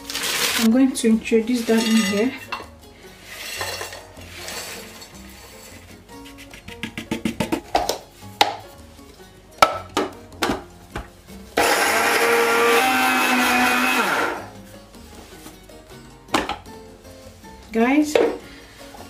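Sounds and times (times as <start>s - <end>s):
flakes clattering into metal cup: 0.0s - 0.7s, 1.6s - 2.6s, 3.3s - 5.2s
electric grinder motor running: 11.6s - 14.5s.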